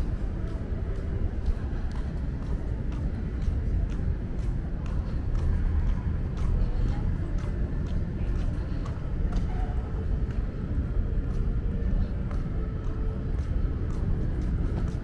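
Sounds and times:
distant voices: 0.0s - 15.0s
faint footsteps: 0.0s - 15.0s
steady low rumble: 0.0s - 15.0s.

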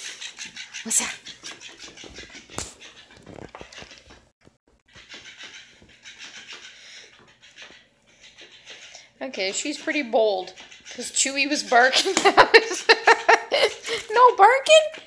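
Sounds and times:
puppy panting: 0.0s - 4.2s, 4.9s - 12.0s.

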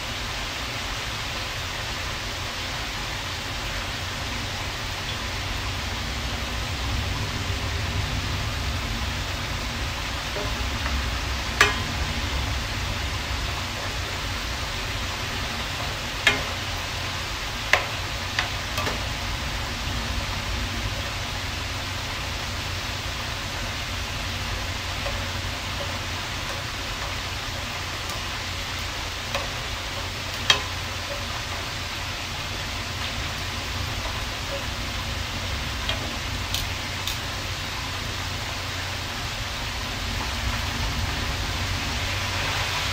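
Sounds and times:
shrimp sizzling in frying pan: 0.0s - 42.9s
metal tongs clacking on pan: 10.3s - 12.3s, 15.3s - 17.0s, 17.7s - 19.2s, 24.9s - 34.8s, 35.8s - 37.3s.

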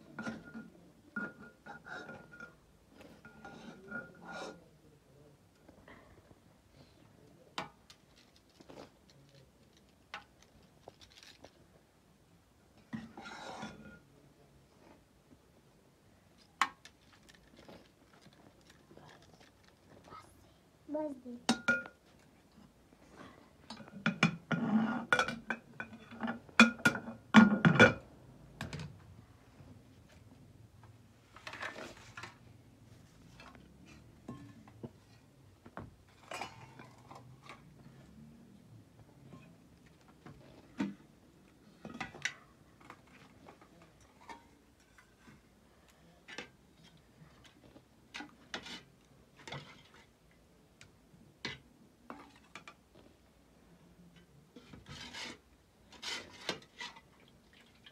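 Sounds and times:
cookware clattering: 0.1s - 4.6s, 21.4s - 22.1s, 23.6s - 28.8s, 34.2s - 34.9s, 36.1s - 37.7s
objects clicking and knocking: 7.5s - 11.7s, 16.3s - 20.1s.

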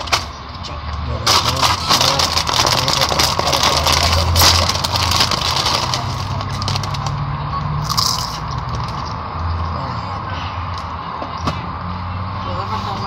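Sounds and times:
plastic chip bag crinkling: 1.3s - 7.2s, 7.8s - 9.1s.

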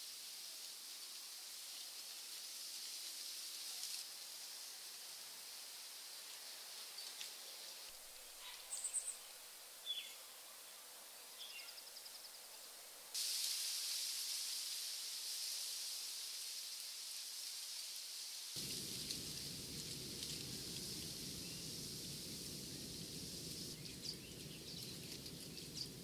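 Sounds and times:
steady high hiss: 0.0s - 26.0s
bird chirps and trills: 23.4s - 26.0s.

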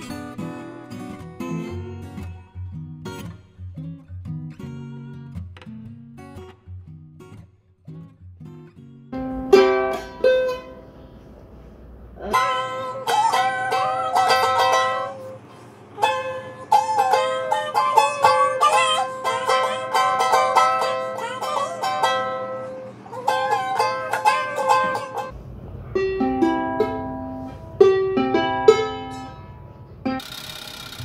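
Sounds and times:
ukulele plucked melody: 9.2s - 11.2s, 12.2s - 30.2s.

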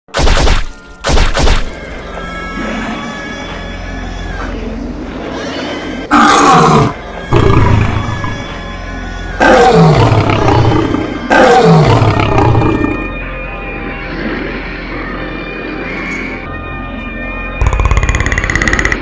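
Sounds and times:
low music bed: 0.6s - 19.0s
monster roars: 6.1s - 8.4s, 9.4s - 13.1s.

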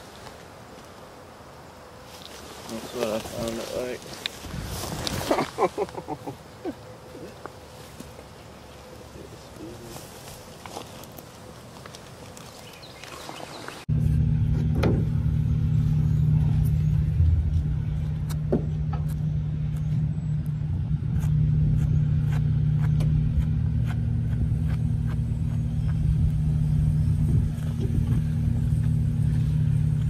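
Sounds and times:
engine droning: 13.7s - 30.0s.

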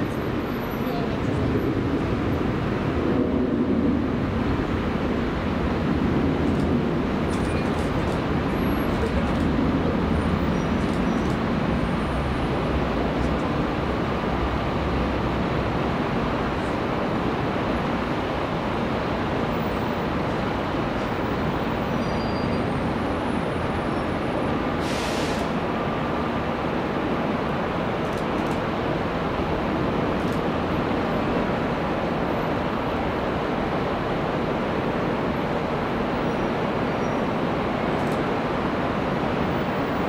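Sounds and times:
jet engines rumbling: 0.0s - 21.9s
brief hiss: 24.8s - 25.6s.

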